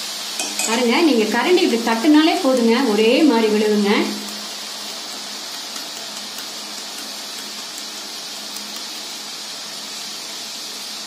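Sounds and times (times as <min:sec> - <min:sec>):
oil sizzling: 0:00.0 - 0:11.0.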